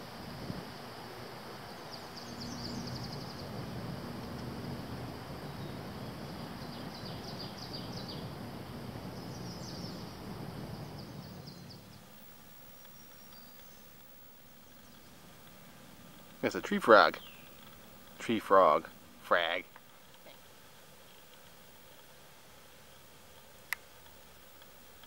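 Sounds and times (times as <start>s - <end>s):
thin high hum: 0.0s - 25.0s
bird singing high trills: 1.7s - 3.5s, 5.5s - 10.2s, 10.8s - 15.2s, 16.9s - 17.6s.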